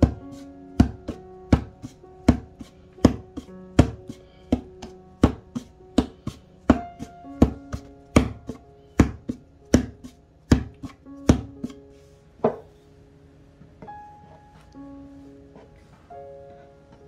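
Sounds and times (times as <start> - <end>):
hands knocking dough on board: 0.0 - 11.8
background music sustained notes: 0.0 - 17.0.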